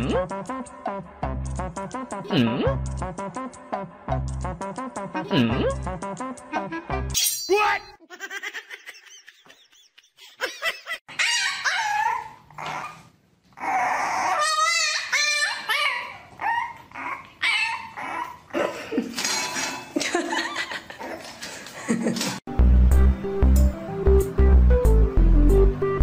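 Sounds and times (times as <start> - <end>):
puppy whining and yipping: 11.1 - 18.6
puppy barking: 14.2 - 16.3.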